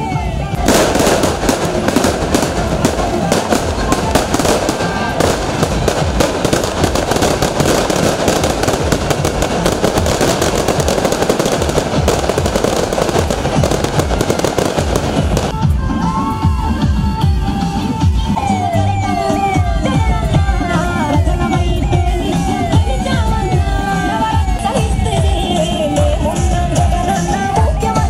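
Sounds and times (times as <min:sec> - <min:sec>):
firecrackers crackling: 0:00.0 - 0:15.7.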